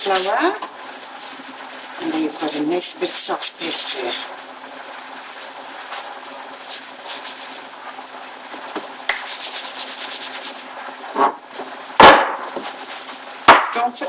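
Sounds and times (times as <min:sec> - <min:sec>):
hands kneading dough: 0:05.4 - 0:07.7, 0:08.6 - 0:10.8, 0:12.6 - 0:13.3.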